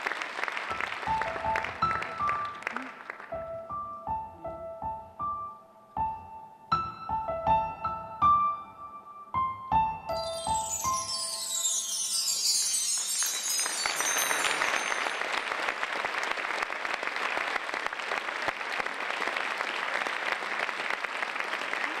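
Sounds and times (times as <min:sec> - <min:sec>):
audience applauding: 0:00.0 - 0:03.4, 0:10.6 - 0:22.0
music notes ringing out: 0:09.9 - 0:15.5.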